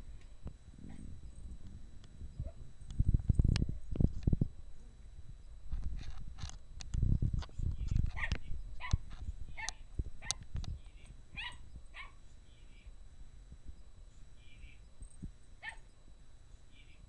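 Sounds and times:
small dog yipping: 0:11.4 - 0:12.2, 0:15.6 - 0:15.9.

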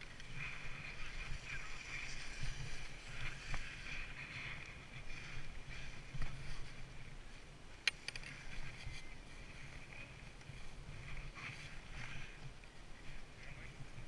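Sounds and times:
skis sliding on snow: 0:00.0 - 0:14.0
wind rumble on microphone: 0:00.0 - 0:14.0
sharp clicks: 0:07.8 - 0:08.3.

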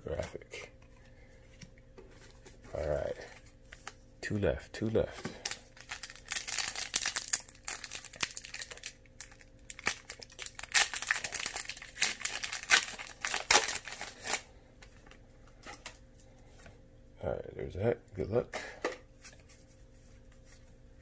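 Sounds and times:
foil wrapper crinkling: 0:05.4 - 0:16.0.

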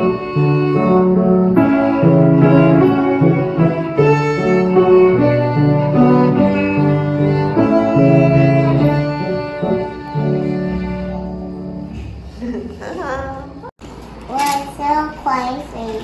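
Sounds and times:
violin playing slow tune: 0:00.0 - 0:11.5
piano chords: 0:00.0 - 0:13.7.

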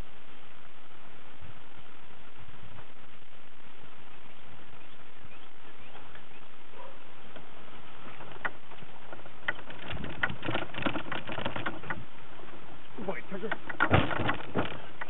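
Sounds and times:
bicycle clicking and rattling: 0:08.1 - 0:12.5, 0:13.4 - 0:15.0.

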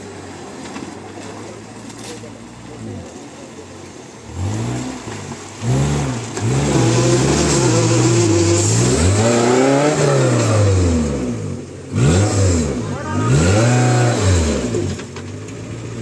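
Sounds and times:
engine revving hard: 0:04.2 - 0:15.0.

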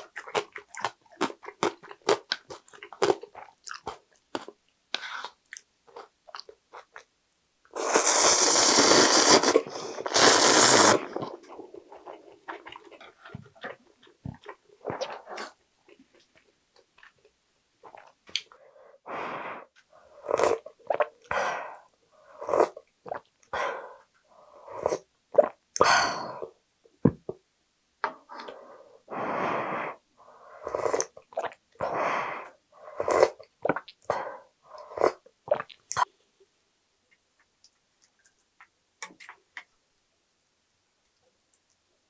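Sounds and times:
person slurping broth: 0:07.8 - 0:12.9, 0:19.2 - 0:23.3, 0:24.4 - 0:26.5, 0:28.3 - 0:36.0.

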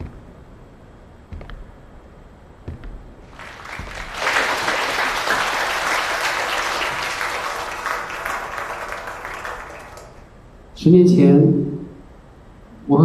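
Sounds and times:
audience applauding: 0:03.3 - 0:10.4.

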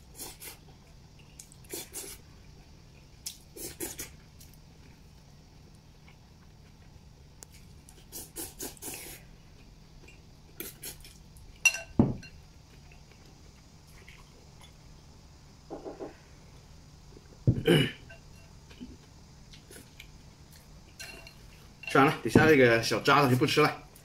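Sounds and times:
person eating noodles: 0:00.0 - 0:00.7, 0:01.4 - 0:02.2, 0:03.2 - 0:04.2, 0:07.9 - 0:09.2
ringing ceramic clink: 0:11.7 - 0:12.4
chopsticks clinking on bowl: 0:21.0 - 0:22.2.

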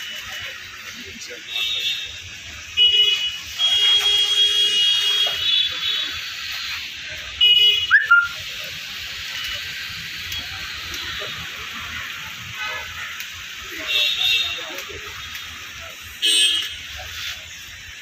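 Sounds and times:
vehicle horn honking: 0:02.8 - 0:06.1.

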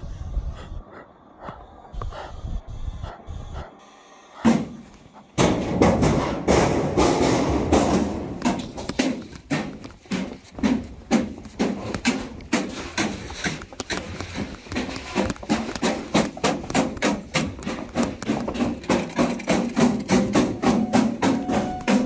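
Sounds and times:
heavy breathing: 0:00.0 - 0:05.8
footsteps thudding: 0:04.5 - 0:22.0.

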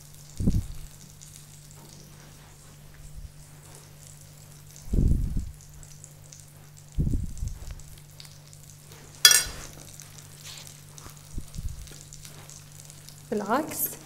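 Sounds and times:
pastries sizzling in hot oil: 0:00.0 - 0:14.0
metal spoon clinking on glass bowl: 0:09.3 - 0:09.7.

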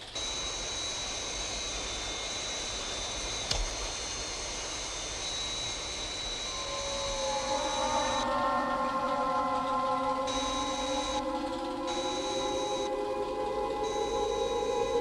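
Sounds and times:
spacecraft engine whine: 0:00.0 - 0:15.0
music: 0:06.4 - 0:15.0.

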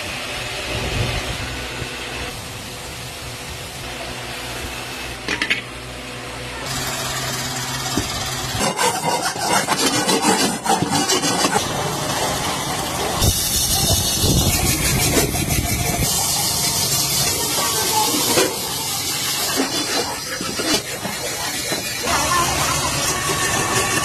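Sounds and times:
hand scrapers rasping on metal: 0:08.6 - 0:24.0.

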